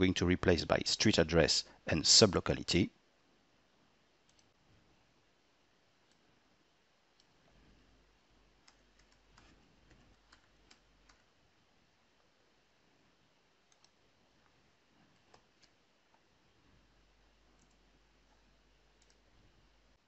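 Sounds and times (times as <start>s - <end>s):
keyboard keystrokes and clicks: 8.6s - 11.3s, 13.6s - 14.0s, 15.1s - 16.2s, 17.5s - 19.3s.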